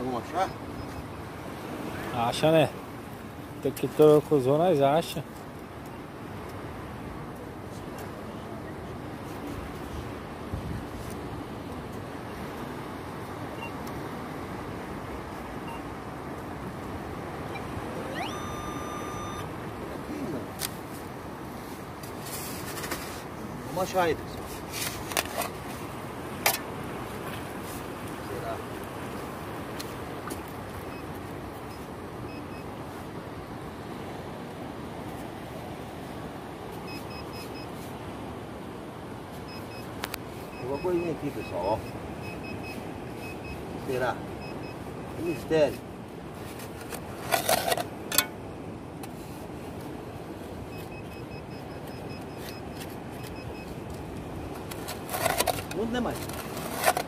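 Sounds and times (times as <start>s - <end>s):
surf washing: 0.0s - 57.0s
wind noise: 9.2s - 15.8s
metal detector tone: 17.5s - 19.5s, 40.5s - 43.6s, 50.7s - 53.8s.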